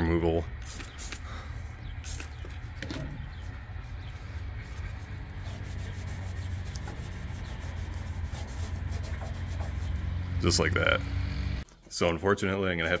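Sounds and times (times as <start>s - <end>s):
steady low hum: 0.0s - 13.0s
spray bottle squirts: 0.6s - 1.2s, 2.0s - 3.1s
cloth rubbing on sheet metal: 2.8s - 10.2s.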